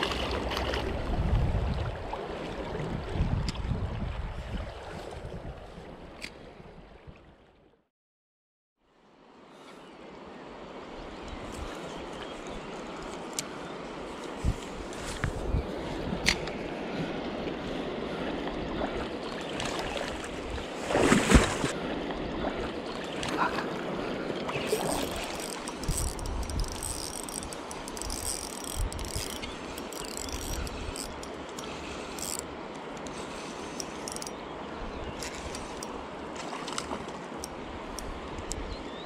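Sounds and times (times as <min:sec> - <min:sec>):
fishing reel ticking and whirring: 0:24.7 - 0:34.3.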